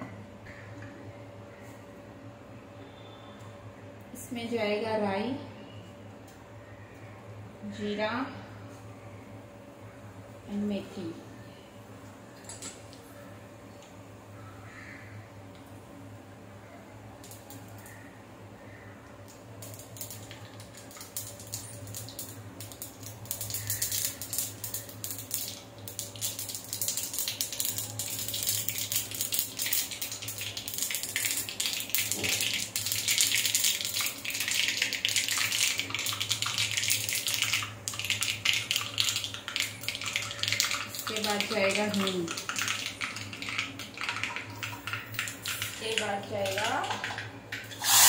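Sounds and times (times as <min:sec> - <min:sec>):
seeds sizzling in hot oil: 0:19.6 - 0:43.9, 0:47.7 - 0:48.0.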